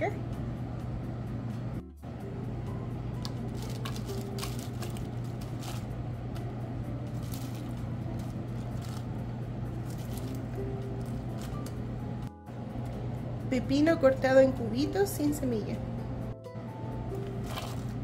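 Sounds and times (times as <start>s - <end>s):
steady low hum: 0.0s - 18.0s
spinach leaves rustling into bowl: 3.2s - 5.9s, 7.1s - 11.8s, 17.4s - 18.0s.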